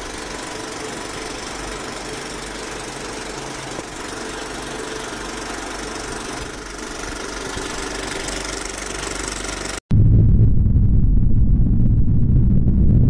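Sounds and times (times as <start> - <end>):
film projector whirring: 0.0 - 9.8
low hum: 9.9 - 13.0.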